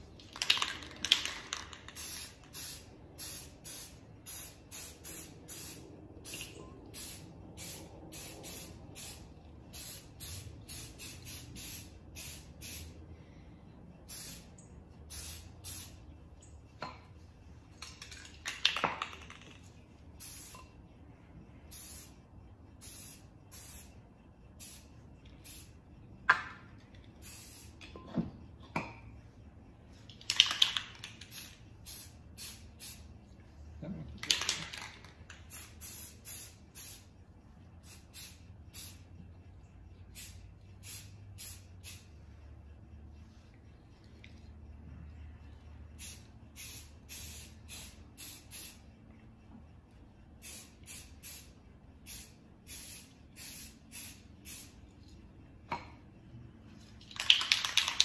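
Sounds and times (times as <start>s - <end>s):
spray paint can hissing: 0.2s - 13.0s, 14.1s - 16.0s, 17.8s - 20.7s, 21.7s - 22.2s, 22.8s - 24.0s, 24.6s - 25.8s, 27.2s - 27.8s, 30.1s - 33.1s, 34.2s - 37.1s, 37.8s - 39.1s, 40.1s - 42.1s, 46.0s - 48.8s, 50.4s - 54.8s, 57.0s - 58.0s.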